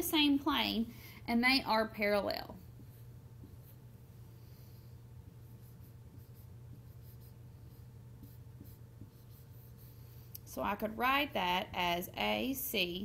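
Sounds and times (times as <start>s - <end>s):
low room hum: 0.0s - 13.0s
marker scratching on whiteboard: 2.5s - 3.9s, 5.4s - 10.3s.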